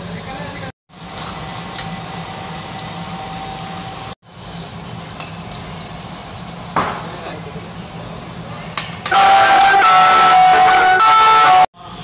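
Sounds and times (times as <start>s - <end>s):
curry sizzling and bubbling: 0.0s - 8.5s.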